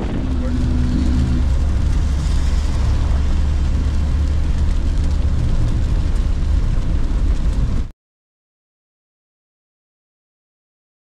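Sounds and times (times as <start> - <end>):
van engine and road rumble: 0.0 - 7.9
tyre hiss on wet road: 0.2 - 7.6.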